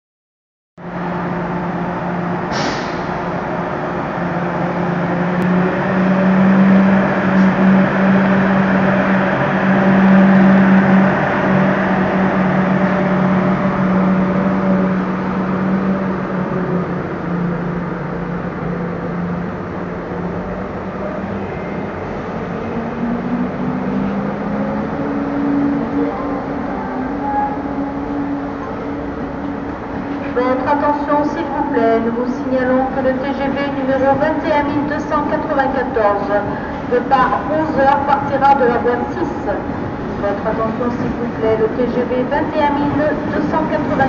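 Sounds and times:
train electric hum and rumble: 0.8s - 44.0s
brief high hiss: 2.5s - 3.2s.

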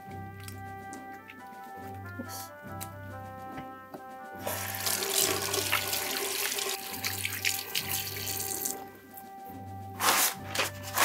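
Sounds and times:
background music with bass pulse: 0.0s - 11.0s
faucet water splashing on hands: 4.5s - 8.9s.

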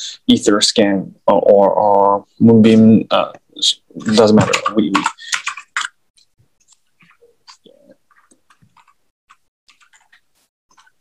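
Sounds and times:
computer keyboard clicks: 4.4s - 5.9s.

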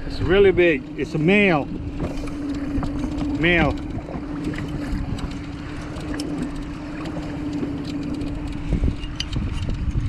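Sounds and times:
boat motor humming: 0.0s - 10.0s
wind buffeting microphone: 0.0s - 10.0s.

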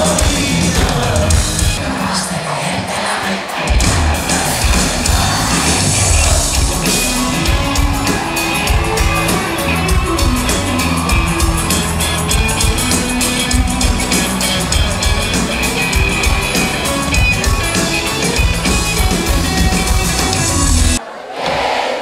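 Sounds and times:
bass guitar: 0.0s - 1.8s, 3.7s - 21.0s
drum kit beat: 0.0s - 1.9s, 3.5s - 21.0s
live band playing pop-rock: 0.0s - 2.2s, 3.5s - 21.0s
crowd shouting: 0.0s - 22.0s
electric guitar: 3.8s - 21.0s.

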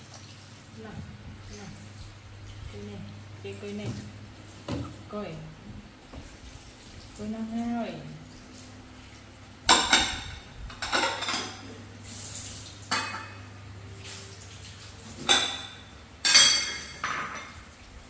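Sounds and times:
dishes clattering in sink: 3.8s - 5.0s, 9.6s - 11.9s, 12.8s - 13.6s, 15.0s - 17.8s.

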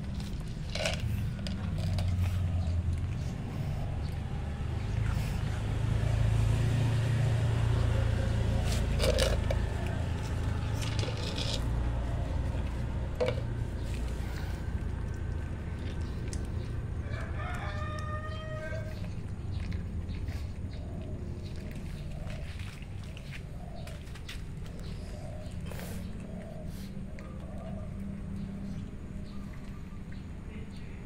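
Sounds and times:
cats crunching dry kibble: 0.0s - 5.4s, 8.1s - 26.9s
steady low rumble: 0.0s - 17.4s.

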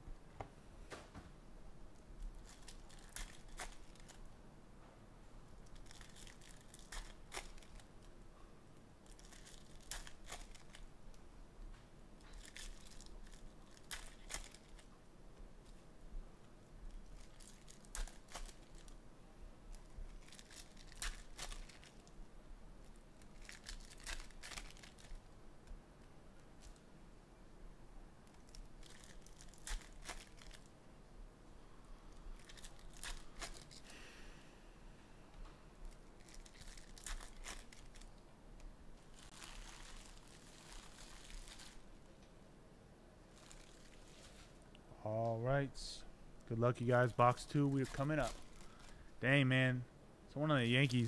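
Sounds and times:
foil wrappers crinkling and tearing: 2.2s - 4.3s, 5.7s - 8.0s, 9.0s - 10.9s, 12.2s - 14.9s, 16.9s - 19.0s, 19.7s - 22.1s, 22.8s - 25.3s, 28.2s - 30.7s, 32.2s - 33.9s, 35.8s - 38.2s, 39.0s - 41.9s, 43.3s - 44.7s, 47.0s - 49.1s.

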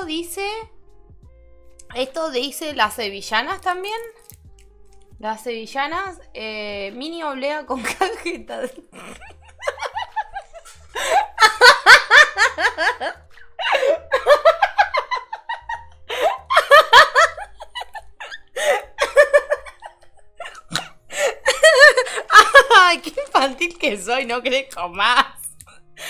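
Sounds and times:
woman laughing: 7.8s - 23.4s.

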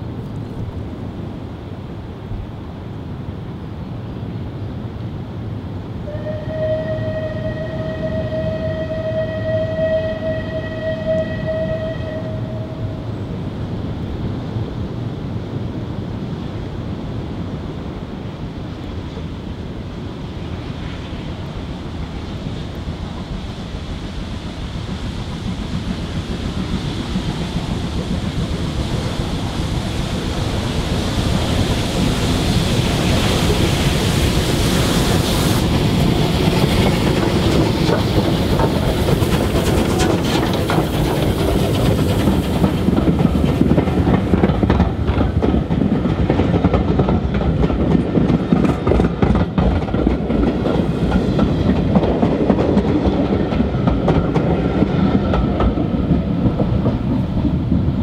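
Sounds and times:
steam locomotive passing: 0.0s - 58.0s
wheels clattering over rail joints: 35.7s - 57.9s.

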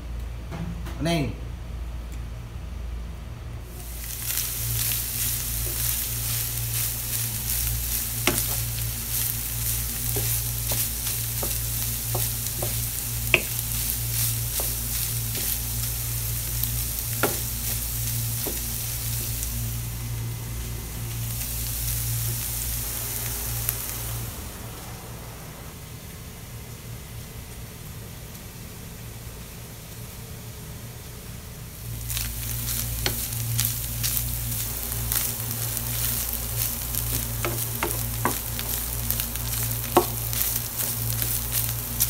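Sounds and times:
meat sizzling in a frying pan: 3.7s - 24.5s, 31.7s - 42.0s
spatula knocking against pan: 12.2s - 13.6s.

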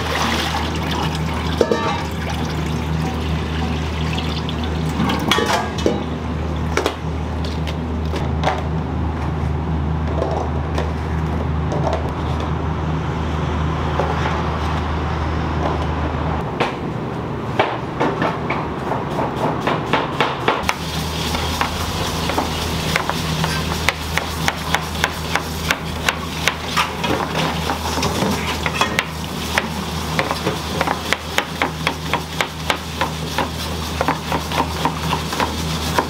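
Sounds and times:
steady low hum: 0.4s - 26.7s
pots and utensils clattering: 1.6s - 2.2s, 4.9s - 6.1s, 26.6s - 31.1s.

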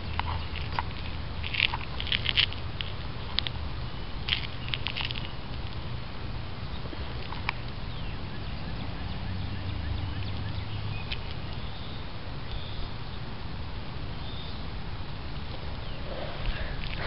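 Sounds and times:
bird chirps: 7.8s - 13.2s.

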